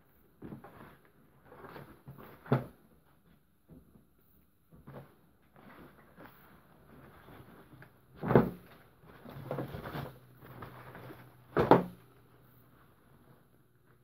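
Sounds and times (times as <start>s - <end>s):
fabric rustling and scraping: 4.7s - 14.0s
thumps in plastic bin: 11.5s - 12.0s.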